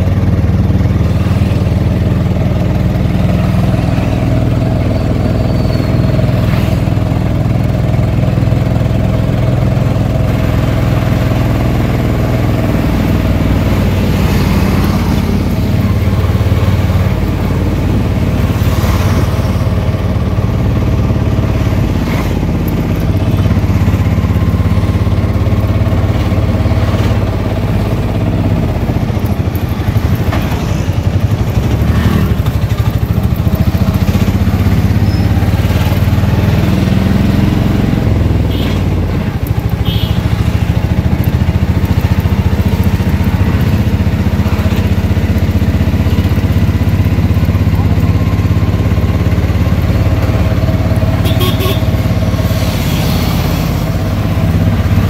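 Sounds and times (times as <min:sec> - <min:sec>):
auto-rickshaw engine running: 0:00.0 - 0:55.0
town traffic: 0:00.0 - 0:55.0.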